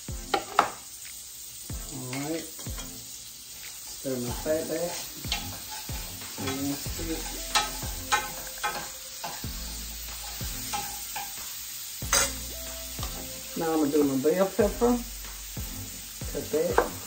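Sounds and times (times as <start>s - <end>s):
fat sizzling in a pot: 0.0s - 17.0s
spoon scraping a pot: 3.7s - 9.5s, 10.2s - 11.4s.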